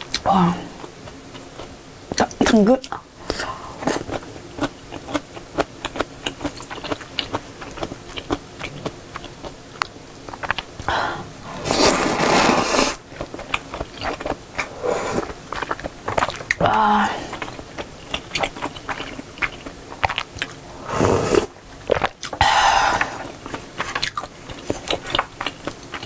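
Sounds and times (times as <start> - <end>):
wet chewing: 0.8 - 10.9, 11.7 - 26.0
noodle slurp: 11.5 - 13.0, 14.0 - 15.8, 20.7 - 22.1.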